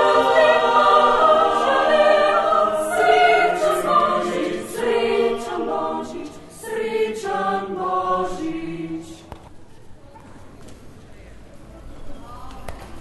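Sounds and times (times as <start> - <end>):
mixed choir singing a cappella: 0.0 - 9.4.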